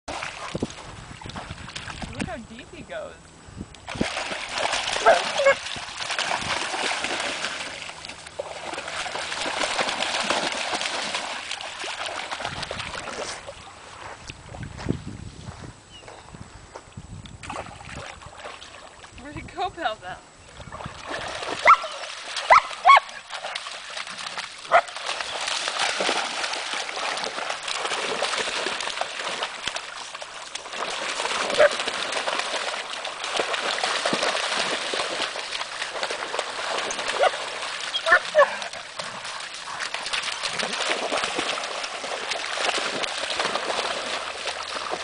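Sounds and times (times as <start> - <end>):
dogs splashing through water: 0.1 - 2.8, 3.8 - 14.8, 17.4 - 19.6, 20.5 - 45.0
wind rumble on microphone: 0.1 - 7.3, 12.4 - 21.7.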